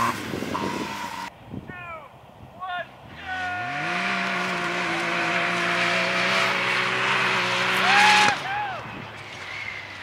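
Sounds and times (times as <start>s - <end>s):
engine running at high revs: 0.0s - 1.3s, 3.6s - 8.4s.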